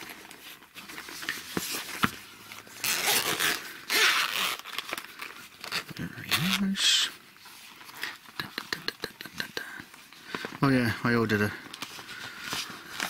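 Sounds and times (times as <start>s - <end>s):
zipper being pulled open: 2.5s - 4.9s.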